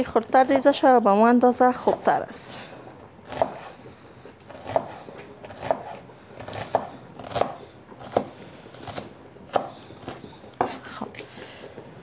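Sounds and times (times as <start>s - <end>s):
knife chopping on wooden board: 3.3s - 3.7s, 4.5s - 10.8s.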